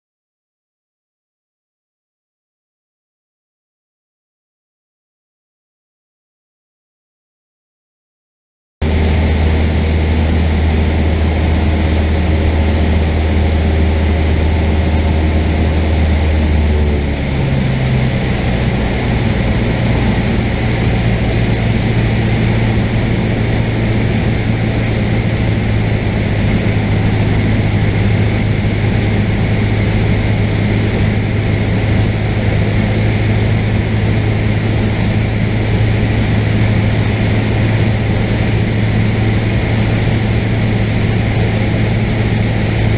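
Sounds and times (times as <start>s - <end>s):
propeller plane engine droning: 8.8s - 42.9s.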